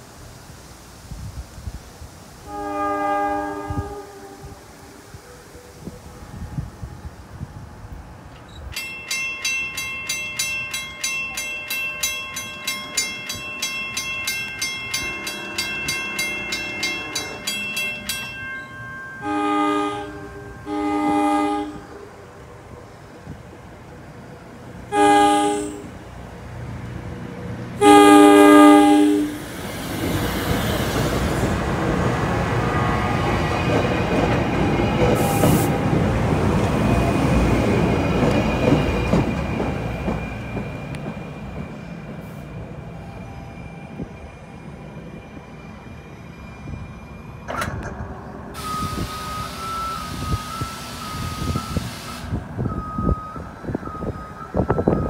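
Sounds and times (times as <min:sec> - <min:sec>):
train wheels rumbling on rails: 0:00.0 - 0:55.0
train horn blasts: 0:02.4 - 0:06.9, 0:14.9 - 0:18.1, 0:19.1 - 0:22.2, 0:24.9 - 0:26.1, 0:27.8 - 0:29.5.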